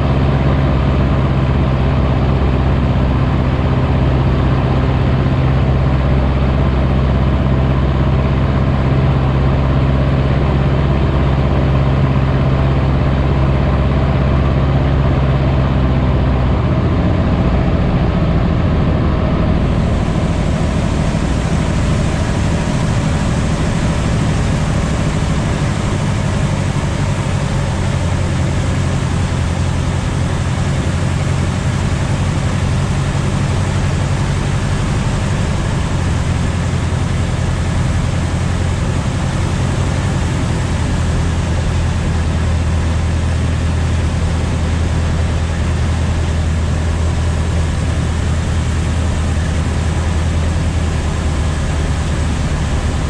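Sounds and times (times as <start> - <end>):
aircraft engine and propeller drone: 0.0 - 53.0
rushing air: 16.3 - 53.0.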